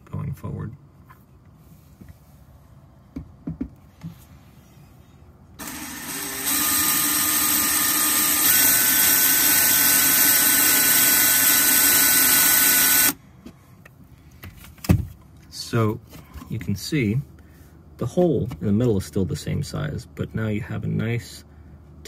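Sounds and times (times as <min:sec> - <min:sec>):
cordless drill whining: 0:05.6 - 0:13.2.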